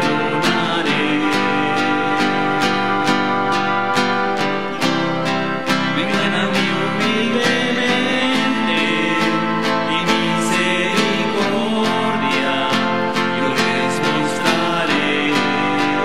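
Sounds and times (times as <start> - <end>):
strummed acoustic guitar hymn: 0.0 - 16.0.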